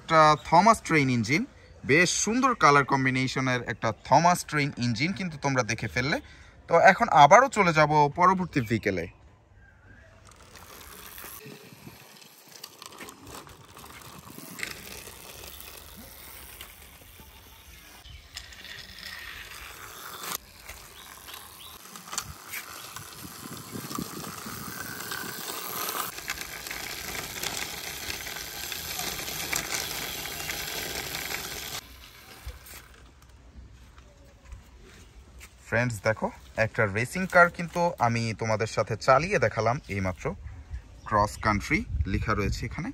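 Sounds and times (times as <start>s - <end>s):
toy car wheels scraping concrete: 10.1s - 33.3s.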